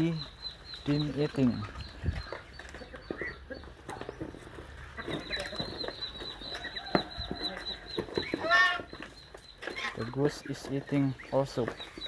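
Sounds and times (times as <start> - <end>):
birds pecking and bill clicks: 0.0 - 12.0
soft bird calls: 0.0 - 12.0.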